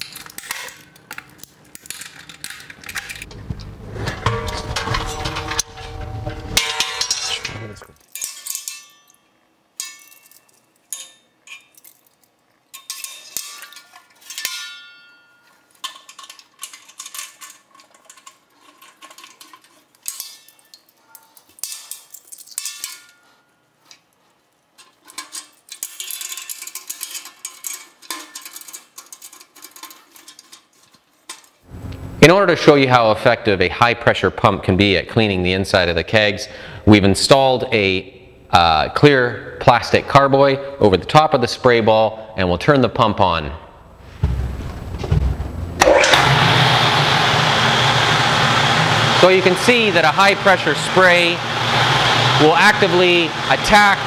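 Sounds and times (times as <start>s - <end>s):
metallic clinks and clanks: 4.0s - 24.1s, 24.8s - 31.6s.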